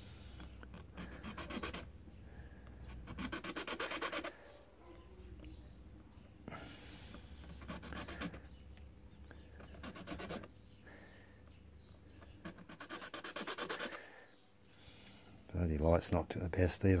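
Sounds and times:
file rasping on metal key: 0:03.0 - 0:04.3, 0:12.4 - 0:14.0.

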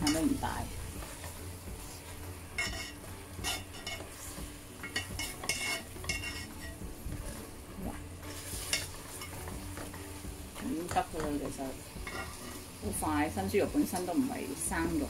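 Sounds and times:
faint sizzle: 0:00.0 - 0:15.0
spatula scraping and knocking pot: 0:01.0 - 0:07.4, 0:08.3 - 0:10.0, 0:10.6 - 0:12.6.

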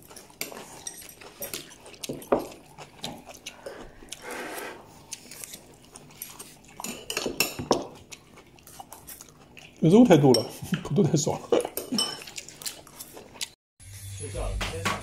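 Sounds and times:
people chewing: 0:00.0 - 0:13.6
cutlery clicking on dishes: 0:06.8 - 0:08.0.

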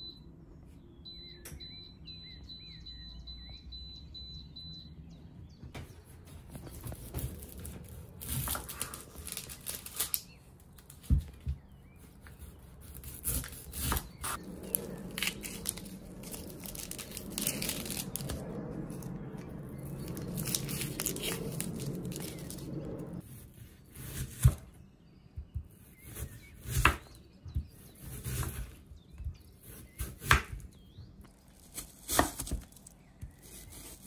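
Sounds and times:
onion skin crackling and tearing: 0:07.0 - 0:11.1, 0:12.7 - 0:23.2, 0:29.8 - 0:34.0
knife cutting onion: 0:12.0 - 0:18.4, 0:25.8 - 0:28.8, 0:29.6 - 0:30.7.

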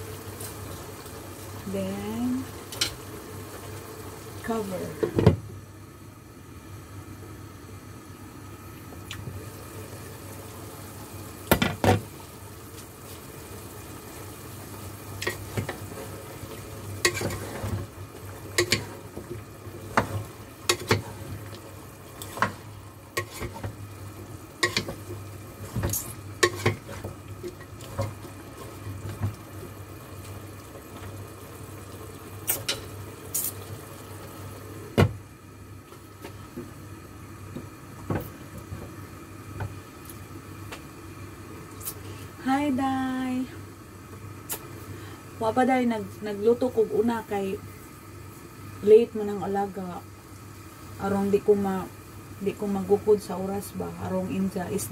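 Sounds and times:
wooden spatula stirring in pot: 0:15.1 - 0:31.2.

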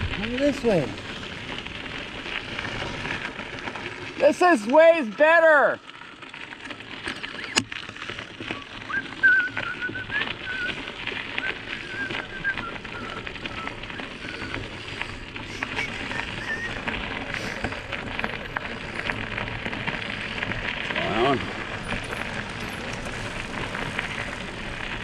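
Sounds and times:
bike tyres on dirt trail: 0:00.0 - 0:25.0
clicks and rattles from bumps: 0:05.8 - 0:25.0
thin wavering whistle: 0:08.5 - 0:10.8, 0:11.4 - 0:14.4.

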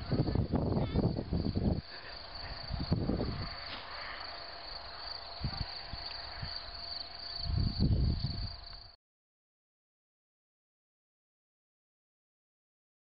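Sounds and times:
low rumbles: 0:00.0 - 0:08.9
crickets chirring: 0:00.0 - 0:09.0.

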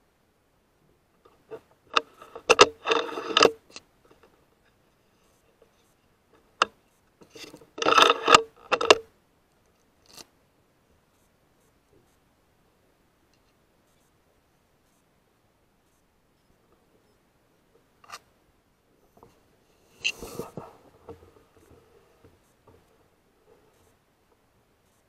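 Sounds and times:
rifle bolt scraping slide: 0:01.9 - 0:03.6, 0:07.2 - 0:09.0, 0:19.9 - 0:20.6.

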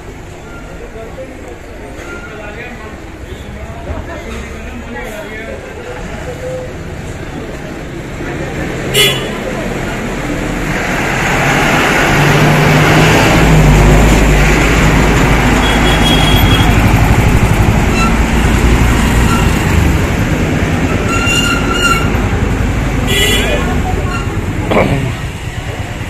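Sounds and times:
road noise: 0:00.0 - 0:26.0
truck engine rumbling: 0:03.8 - 0:26.0
vehicle horn: 0:08.9 - 0:09.4, 0:15.6 - 0:16.9, 0:23.1 - 0:24.3.

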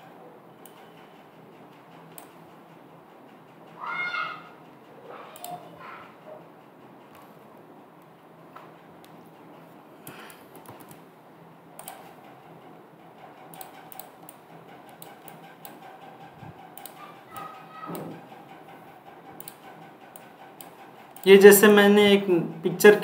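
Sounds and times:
computer mouse clicks: 0:05.4 - 0:05.7, 0:10.0 - 0:11.0, 0:11.8 - 0:12.2, 0:13.5 - 0:15.8, 0:16.8 - 0:18.6, 0:19.4 - 0:21.3
keyboard keys clicking: 0:11.8 - 0:12.2.

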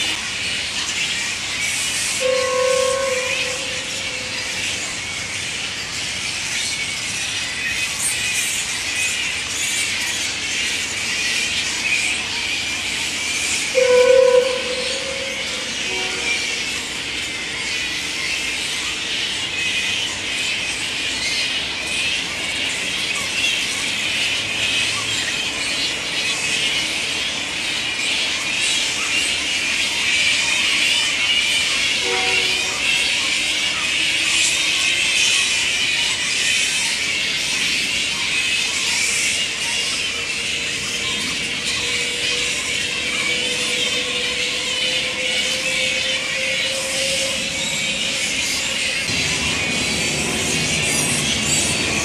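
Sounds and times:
flying foxes squabbling calls: 0:00.2 - 0:52.0
bats squealing and chattering: 0:32.8 - 0:52.0.

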